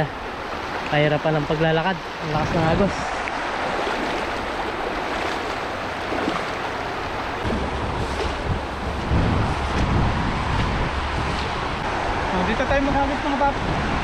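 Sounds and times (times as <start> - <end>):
river water rushing: 0.0 - 14.0
low rumble: 7.2 - 11.9.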